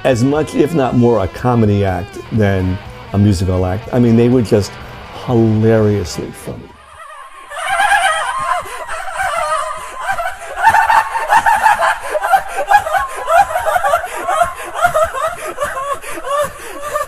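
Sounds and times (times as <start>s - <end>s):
high-pitched voice cackling: 6.8s - 16.5s.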